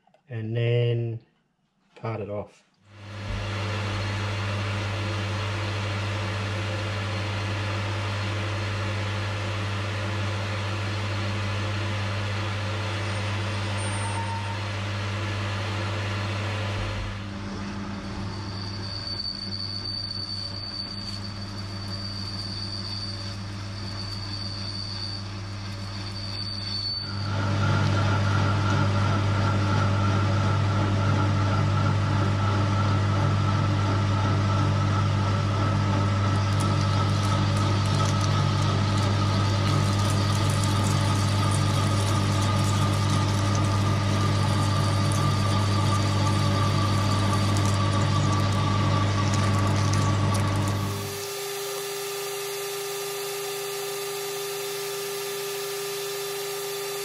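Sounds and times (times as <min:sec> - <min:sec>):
whine of parting-off cut: 0:12.1 - 0:33.3, 0:34.3 - 0:57.0
high squeal of cutting tool: 0:12.9 - 0:14.7, 0:17.5 - 0:28.7, 0:36.2 - 0:57.0
metal lathe humming: 0:35.6 - 0:57.0.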